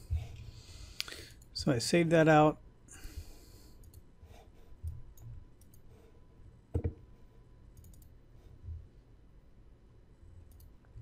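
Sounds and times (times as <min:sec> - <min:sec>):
computer mouse clicks: 0:03.8 - 0:04.1, 0:04.8 - 0:06.0, 0:07.7 - 0:08.2, 0:10.4 - 0:10.8.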